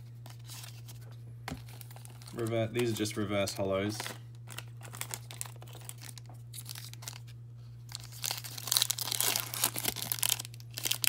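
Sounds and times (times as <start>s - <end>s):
steady low hum: 0.0s - 11.0s
foil pack tearing: 1.6s - 3.1s, 3.8s - 7.3s, 7.9s - 11.0s.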